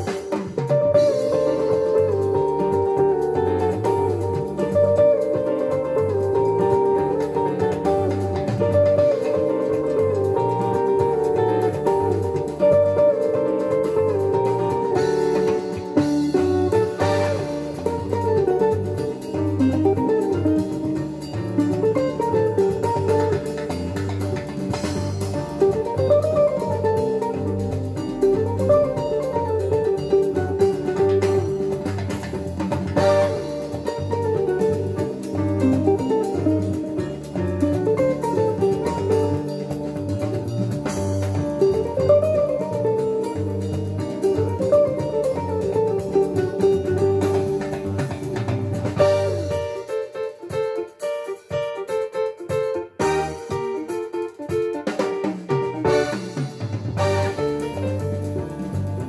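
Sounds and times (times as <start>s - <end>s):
guitar music with bass and drums: 0.0s - 59.0s.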